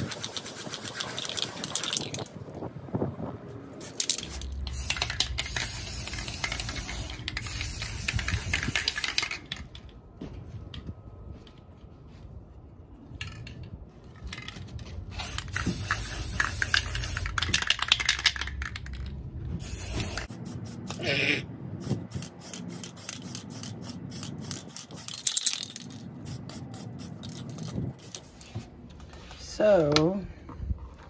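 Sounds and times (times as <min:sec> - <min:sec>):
spray paint can hissing: 0:03.9 - 0:09.6, 0:15.1 - 0:19.0, 0:19.6 - 0:28.4.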